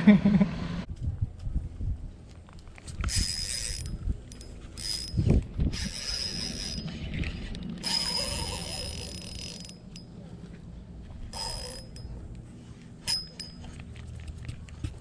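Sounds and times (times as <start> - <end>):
fishing reel whirring: 2.9 - 10.0, 11.3 - 12.1, 13.0 - 13.6.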